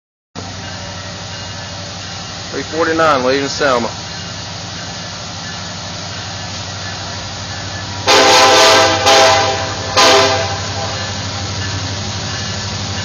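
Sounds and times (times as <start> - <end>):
diesel locomotive engine drone: 0.4 - 13.0
train air horn blasts: 8.0 - 11.4.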